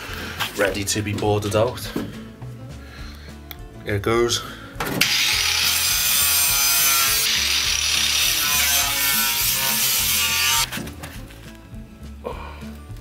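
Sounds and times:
angle grinder grinding metal: 5.0 - 10.8.

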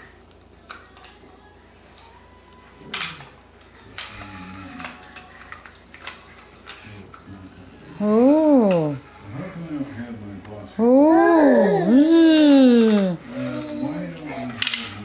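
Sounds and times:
plastic toy clacking on tile floor: 4.0 - 7.2, 14.4 - 15.0.

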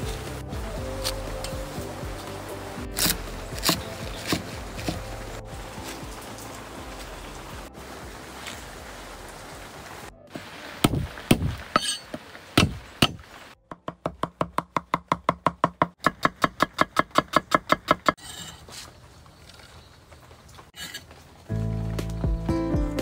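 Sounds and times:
cleaver chopping on wooden board: 3.0 - 5.1, 10.8 - 11.9, 12.6 - 18.2.

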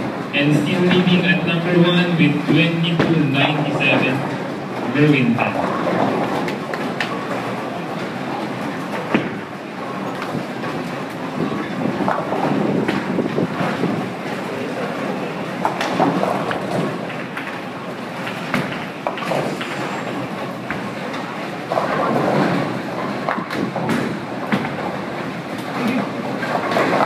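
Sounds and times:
bowling balls rolling: 0.0 - 27.0
people talking: 0.4 - 4.3, 4.9 - 5.7, 25.8 - 26.1.

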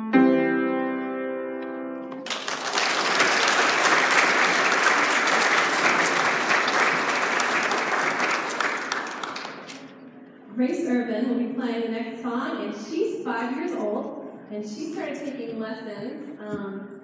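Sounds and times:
piano chord ringing: 0.0 - 2.2
audience applause: 2.1 - 9.9.

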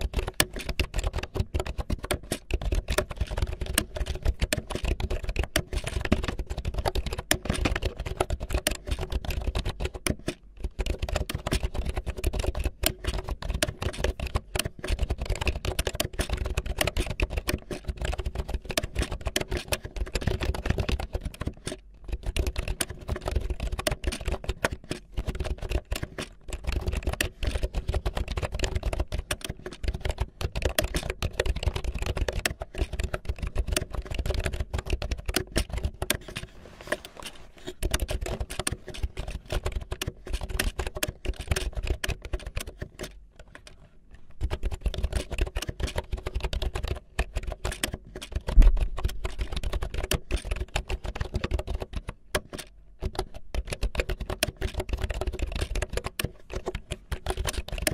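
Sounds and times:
rapid clicking and tapping: 0.0 - 57.9.

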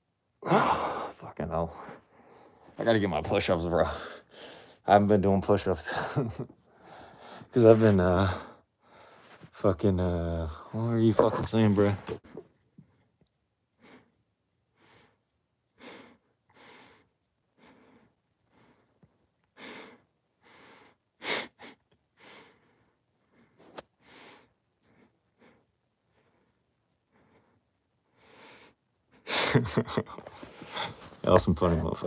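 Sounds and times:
man exhaling hard through mask: 0.4 - 1.1.

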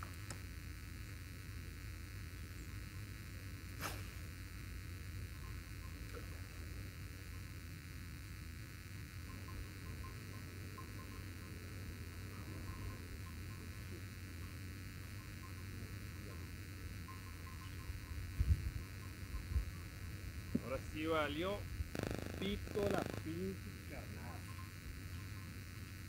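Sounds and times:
low steady hum: 0.0 - 26.0
faint high chirps: 9.2 - 19.9, 24.2 - 25.8.

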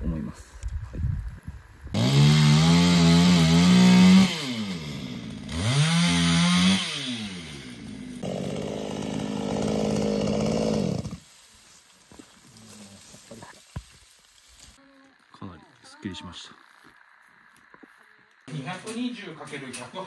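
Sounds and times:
chainsaw engine revving: 1.9 - 11.2.

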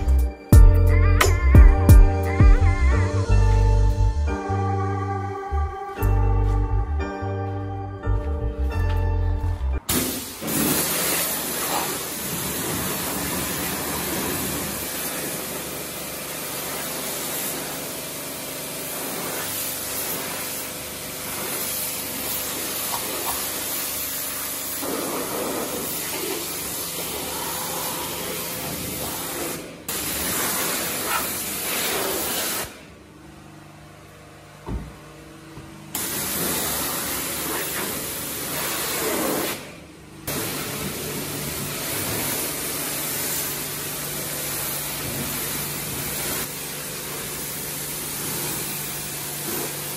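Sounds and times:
pressure washer spraying water: 9.9 - 32.9, 36.0 - 49.9.

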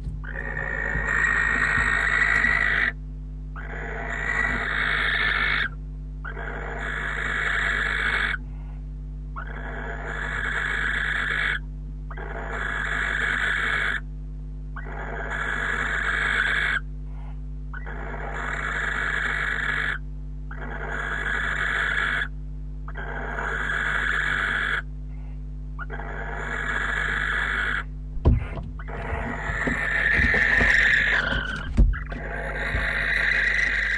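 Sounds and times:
low electrical hum: 0.0 - 33.9
owl rasping hisses: 29.0 - 33.9.

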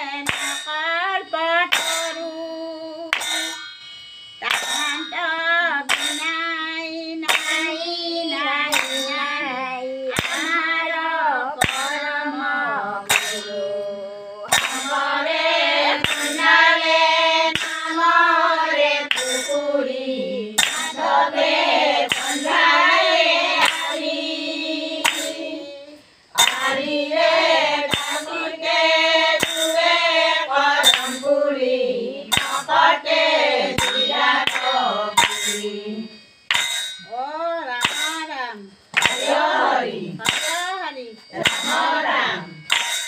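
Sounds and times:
women singing together: 0.0 - 3.6, 4.4 - 43.0
hand claps: 0.2 - 0.7, 1.7 - 2.3, 3.1 - 3.6, 4.5 - 5.0, 5.9 - 6.4, 7.2 - 7.7, 8.7 - 9.2, 10.1 - 10.6, 11.6 - 12.1, 13.1 - 13.5, 14.5 - 15.0, 15.9 - 16.9, 17.5 - 18.1, 19.1 - 19.6, 20.6 - 21.1, 22.0 - 22.8, 23.6 - 24.1, 25.0 - 25.4, 26.4 - 26.8, 27.5 - 31.3, 32.3 - 35.7, 37.8 - 38.2, 38.9 - 39.5, 40.2 - 40.7, 41.4 - 42.0, 42.7 - 43.0.

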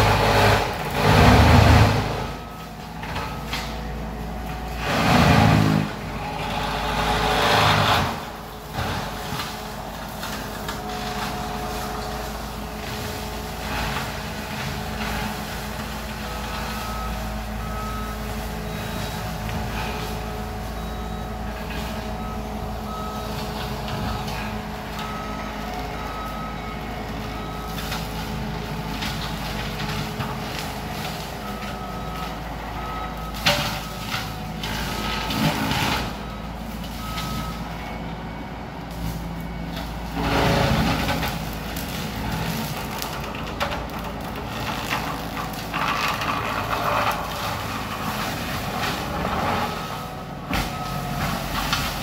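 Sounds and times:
heavy machine engine drone: 0.0 - 52.0
backup alarm beeps: 16.2 - 28.1, 36.0 - 38.0.

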